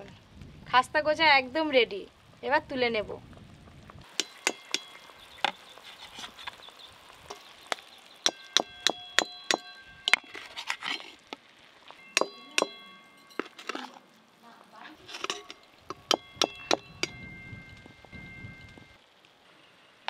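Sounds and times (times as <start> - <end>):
metal skimmer clinking on pot: 4.1 - 5.0, 8.2 - 11.0, 12.0 - 14.0, 15.0 - 18.6.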